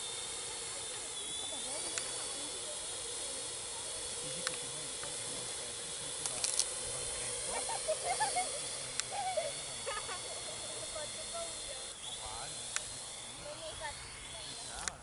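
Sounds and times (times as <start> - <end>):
drone propeller hiss: 0.0 - 15.0
motor whine: 0.0 - 15.0.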